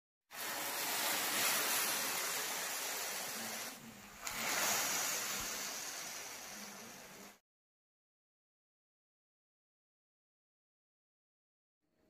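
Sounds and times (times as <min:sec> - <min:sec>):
syrup sizzling on hot pastry: 0:00.3 - 0:07.4.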